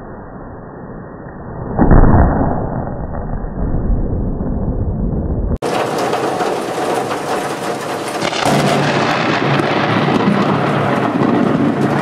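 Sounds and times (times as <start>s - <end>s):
rumble of thunder: 3.8s - 12.0s.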